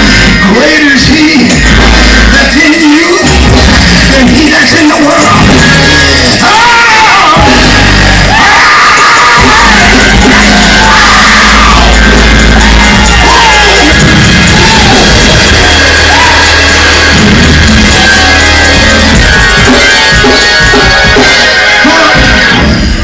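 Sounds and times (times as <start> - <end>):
live gospel band playing: 0.0 - 23.0
voices singing and shouting: 4.5 - 22.7.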